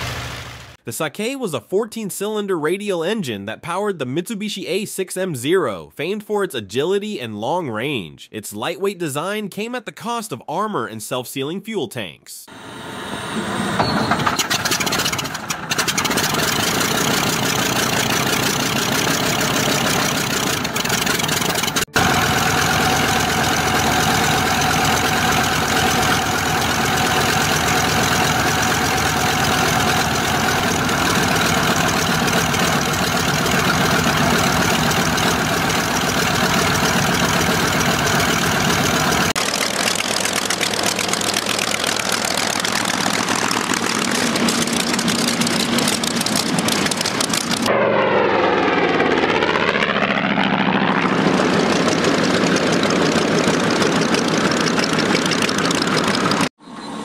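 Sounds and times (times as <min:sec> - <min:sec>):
radial aircraft engine running: 0:00.0 - 0:00.8, 0:12.5 - 0:57.0.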